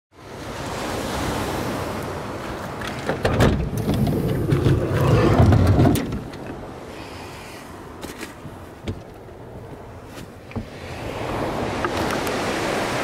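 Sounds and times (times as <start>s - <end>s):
surf on shore: 0.1s - 13.0s
wind: 0.1s - 13.0s
sliding van door opening: 3.0s - 6.5s.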